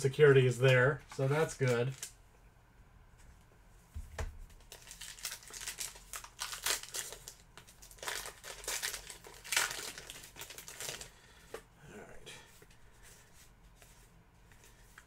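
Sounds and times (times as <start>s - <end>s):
plastic wrapper crinkling: 1.4s - 2.2s, 4.6s - 11.1s.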